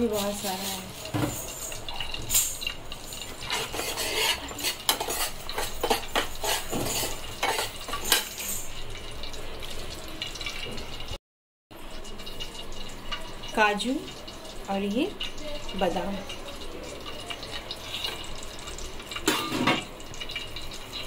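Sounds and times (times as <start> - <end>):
spoon scraping a pan: 0.1 - 8.8, 17.4 - 18.4.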